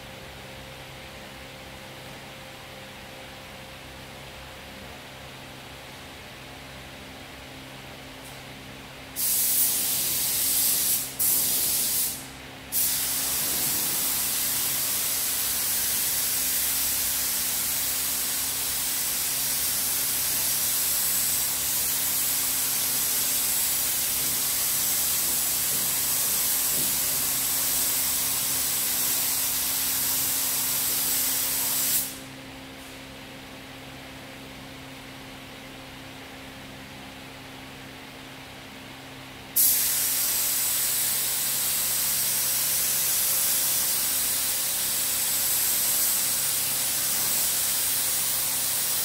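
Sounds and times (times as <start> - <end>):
spray gun hissing: 9.2 - 32.3, 39.6 - 49.0.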